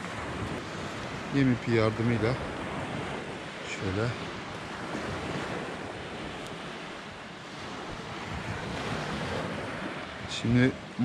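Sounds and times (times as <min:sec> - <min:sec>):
surf on a pebble beach: 0:00.0 - 0:11.0
wind buffeting microphone: 0:00.0 - 0:11.0.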